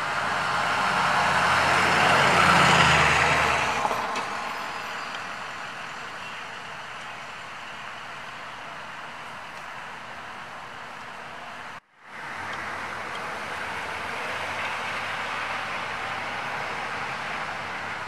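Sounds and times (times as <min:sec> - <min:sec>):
vehicle passing by: 0:00.0 - 0:05.5.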